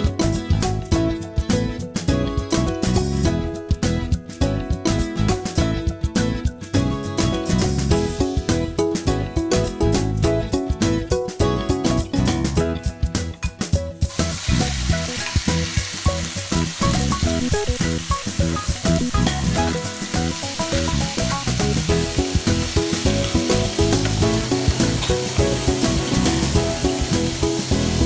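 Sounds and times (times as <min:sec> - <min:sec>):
background music: 0:00.0 - 0:28.0
beef sizzling in hot oil: 0:14.0 - 0:28.0.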